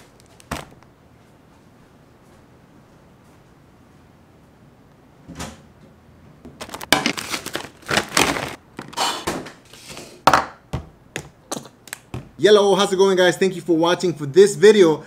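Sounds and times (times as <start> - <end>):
paper bag crinkling: 0.0 - 0.8, 6.6 - 9.1.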